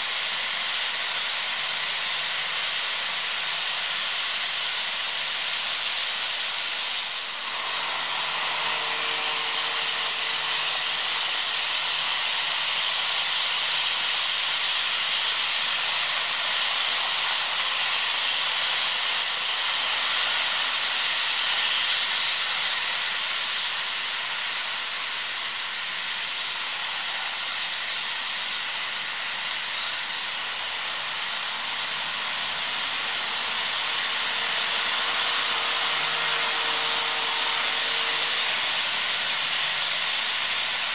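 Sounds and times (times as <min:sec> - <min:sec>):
model locomotive motors: 0:00.0 - 0:40.9
model train wheels on rails: 0:00.0 - 0:40.9.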